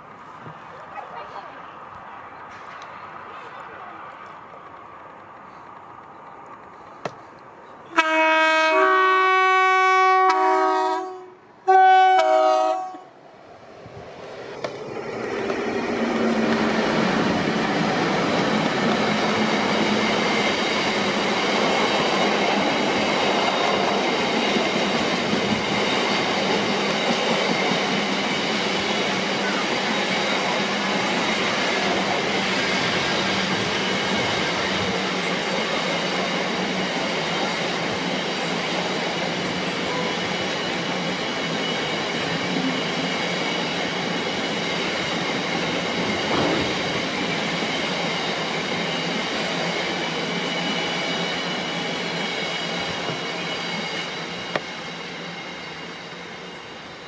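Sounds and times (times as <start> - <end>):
train passing: 0.0 - 57.0
train two-tone horn: 7.9 - 13.1.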